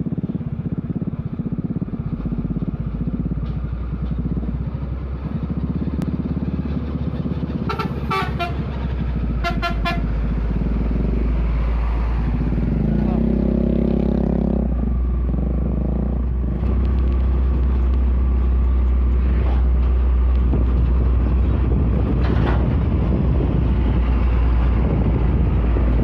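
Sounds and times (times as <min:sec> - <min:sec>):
diesel truck engine running: 0:00.0 - 0:26.0
truck horn short toots: 0:07.6 - 0:08.7, 0:09.4 - 0:10.1.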